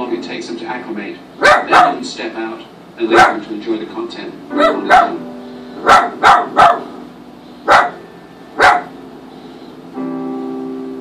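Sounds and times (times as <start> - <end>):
dog barking: 1.4 - 2.0, 3.1 - 3.5, 4.6 - 5.2, 5.8 - 7.0, 7.7 - 8.0, 8.6 - 9.0.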